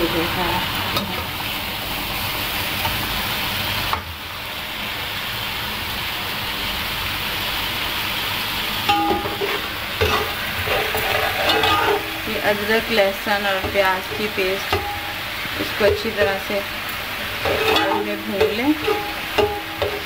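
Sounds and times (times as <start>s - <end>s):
chicken sizzling in oil: 0.0s - 20.0s
spoon knocking against pan: 8.9s - 10.4s, 13.6s - 16.5s, 17.4s - 20.0s.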